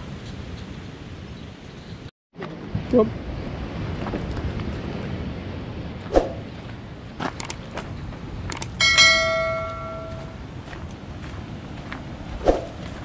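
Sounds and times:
footsteps on dirt path: 6.5 - 8.4, 9.2 - 13.0
sharp mouse clicks: 7.4 - 7.6, 8.5 - 8.8
bright bell chime: 8.8 - 10.4.

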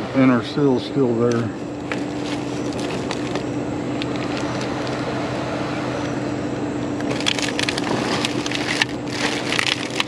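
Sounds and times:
steady machine hum: 0.0 - 10.0
plastic bags crinkling: 1.8 - 5.0, 7.0 - 10.0.

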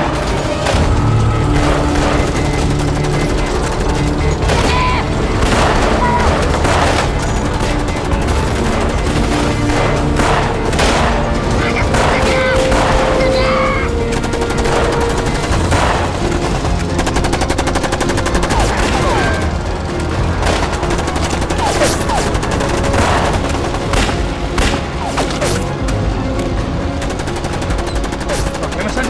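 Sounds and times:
machine gun automatic fire: 0.0 - 24.9, 27.0 - 29.0
rifle gunfire: 0.6 - 25.0.

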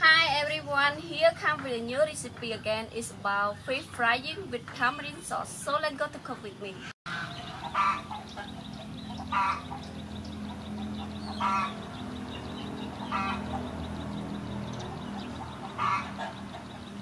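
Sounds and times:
fowl honking calls: 7.1 - 12.0, 12.8 - 13.8, 14.8 - 17.0.

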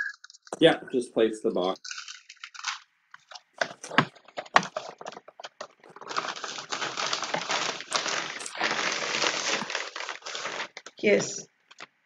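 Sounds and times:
plastic mailing bag crinkling: 1.8 - 11.9.

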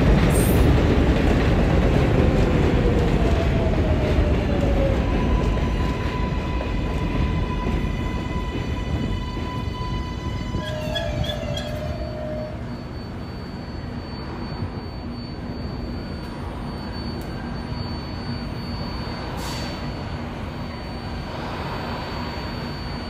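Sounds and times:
train wheels rumbling on rail: 0.0 - 17.6
wavering squeal: 4.4 - 23.0
high whine: 5.4 - 23.0.

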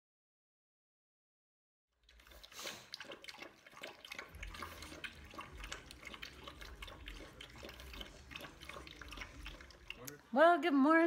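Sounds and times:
dogs chewing and licking: 2.0 - 10.4
low steady hum: 3.8 - 11.0.

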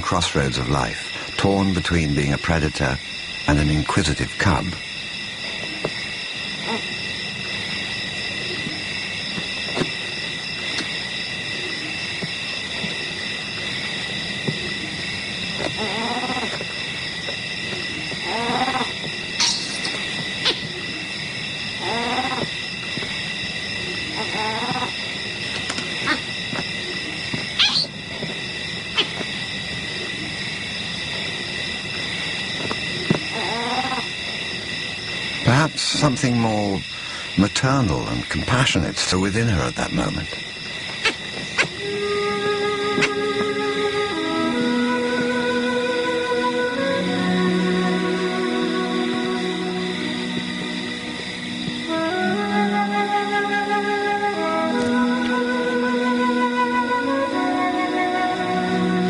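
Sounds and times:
night insects chorus: 0.0 - 59.0
wild animal pitched cries: 15.8 - 16.6, 18.2 - 21.1, 21.8 - 22.5, 24.0 - 25.0, 26.0 - 26.3, 27.6 - 28.0, 28.9 - 29.2, 33.3 - 34.1.

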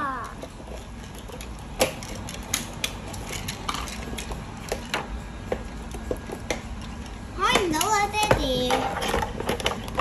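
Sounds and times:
plastic toy parts clicking: 0.0 - 5.1.

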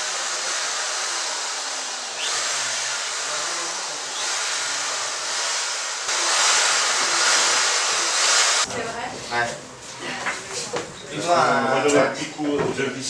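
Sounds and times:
loud rushing air hiss: 0.0 - 8.7.

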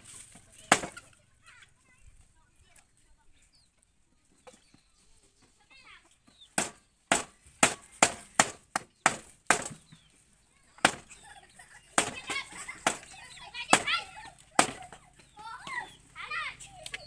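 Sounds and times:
cleaver chopping on wooden block: 6.6 - 9.8, 10.8 - 11.1, 12.0 - 12.2, 14.6 - 14.8.

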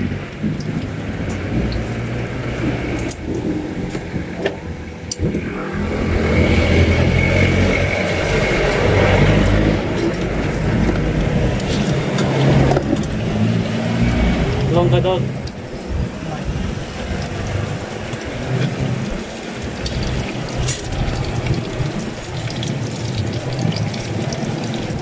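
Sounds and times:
engine rumbling: 0.0 - 25.0
oil sizzling in a wok: 15.4 - 25.0.

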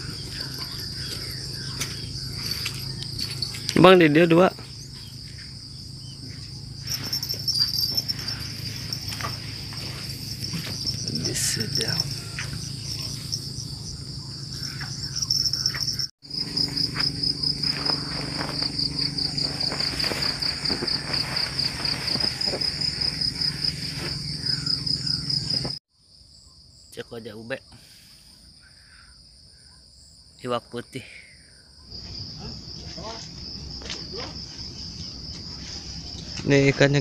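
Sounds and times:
insects chirping: 0.0 - 37.0
faint rustling: 17.6 - 24.7.

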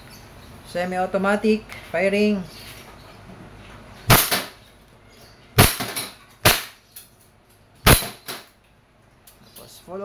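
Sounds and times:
airsoft pistol shots: 4.1 - 4.6, 5.6 - 6.8, 7.8 - 8.5.

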